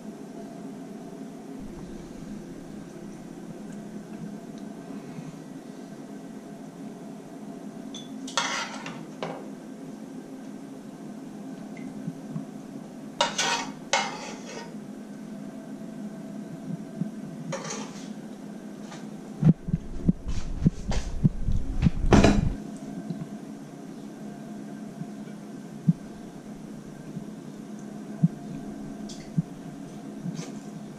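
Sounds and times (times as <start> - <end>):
steady low hum: 0.0 - 30.9
fork scraping a frying pan: 8.3 - 9.0, 13.2 - 14.8, 17.5 - 18.2
knocks and thuds: 21.8 - 22.6.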